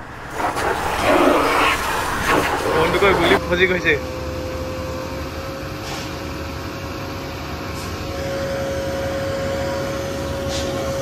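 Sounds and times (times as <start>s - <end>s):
pressure washer running: 0.0s - 3.4s.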